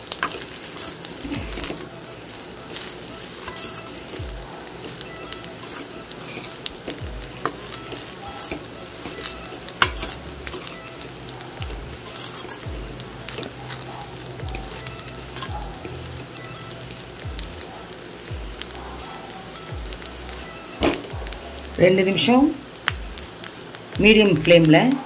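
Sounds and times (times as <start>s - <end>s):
frying sizzle: 0.0s - 25.0s
metal spatula scraping a pan: 0.1s - 12.7s.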